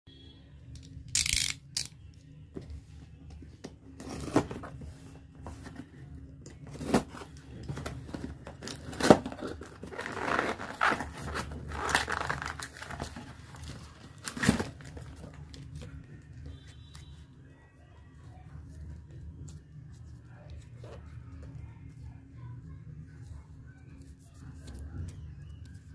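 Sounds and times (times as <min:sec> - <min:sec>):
cardboard and tape tearing: 0:04.0 - 0:04.7, 0:06.6 - 0:15.3.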